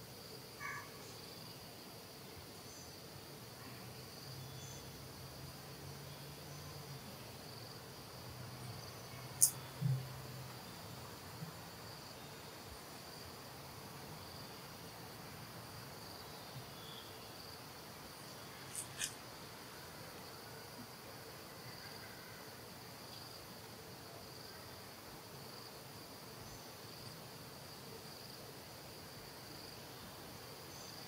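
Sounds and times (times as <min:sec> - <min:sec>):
high-pitched insect chirring: 0:09.4 - 0:09.7, 0:18.7 - 0:19.1.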